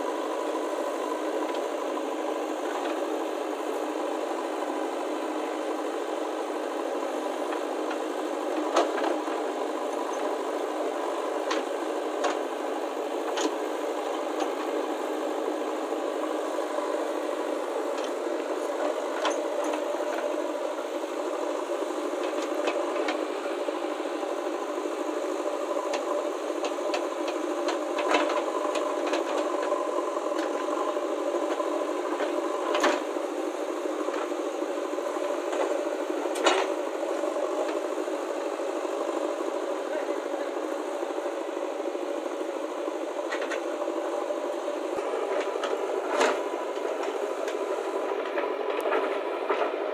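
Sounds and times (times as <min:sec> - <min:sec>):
diesel engine running under load: 0:00.0 - 0:49.9.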